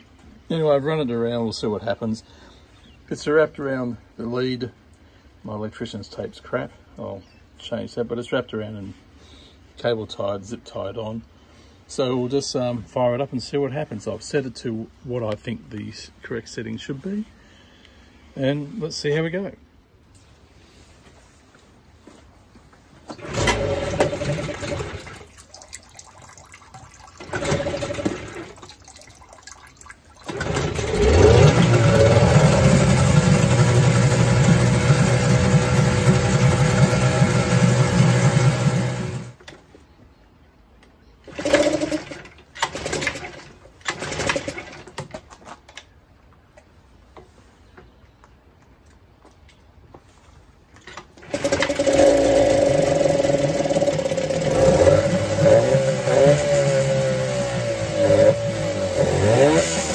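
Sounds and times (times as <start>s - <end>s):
outboard motor pull-start: 23.1s - 25.3s, 27.2s - 28.7s, 30.2s - 39.4s, 41.3s - 45.1s, 50.9s - 59.9s
outboard motor running fast: 30.3s - 39.3s, 51.3s - 59.9s.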